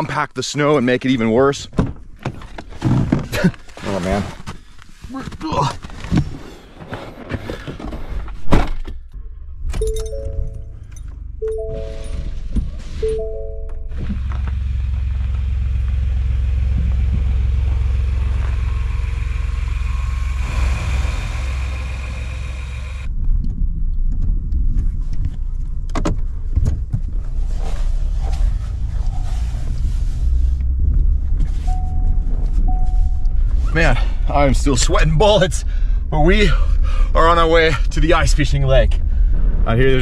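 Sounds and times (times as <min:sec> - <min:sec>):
truck engine humming: 0:09.3 - 0:23.1
truck rumbling through snow: 0:11.5 - 0:23.4, 0:26.3 - 0:40.0.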